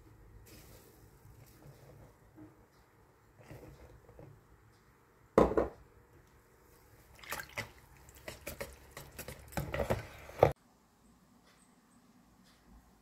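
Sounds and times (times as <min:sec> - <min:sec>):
whisk clicking and scraping bowl: 0:07.6 - 0:10.6.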